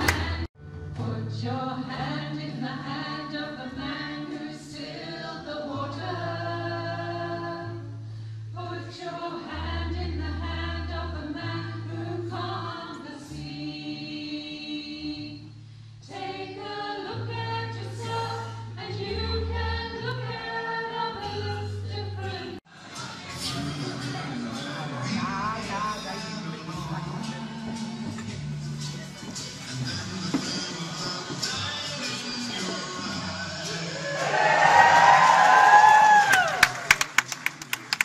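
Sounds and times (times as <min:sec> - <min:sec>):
women singing together: 0:00.0 - 0:07.9, 0:08.6 - 0:22.6.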